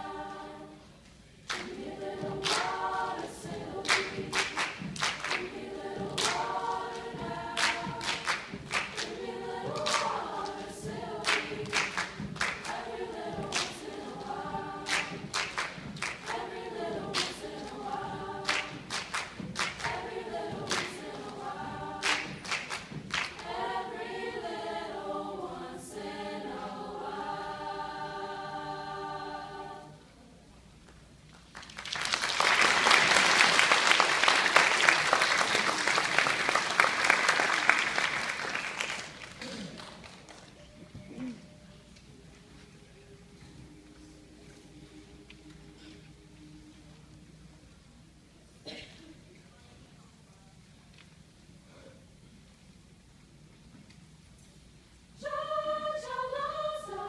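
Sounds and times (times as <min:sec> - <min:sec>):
choir singing a cappella: 0:00.0 - 0:30.4, 0:40.7 - 0:48.9, 0:55.0 - 0:57.0
rhythmic hand claps: 0:01.4 - 0:25.0, 0:30.8 - 0:40.7
audience applause: 0:31.5 - 0:40.6.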